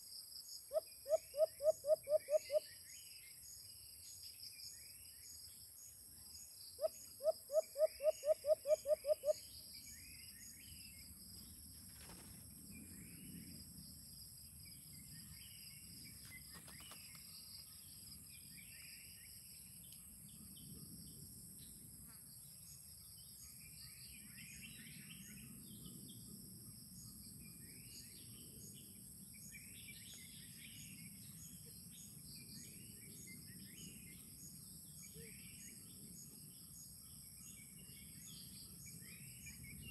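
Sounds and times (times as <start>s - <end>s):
insect chorus: 0.0s - 39.9s
dove low hoots: 0.7s - 2.6s, 6.8s - 9.4s.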